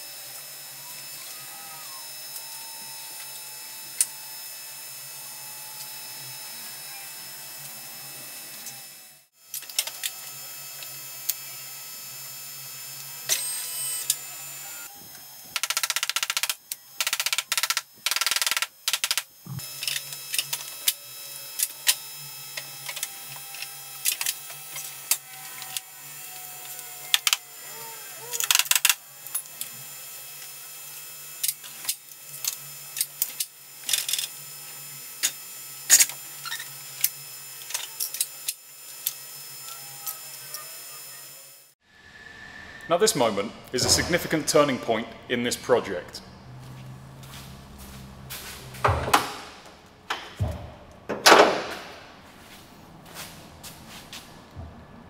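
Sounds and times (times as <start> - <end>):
steady low hum: 41.9 - 51.1.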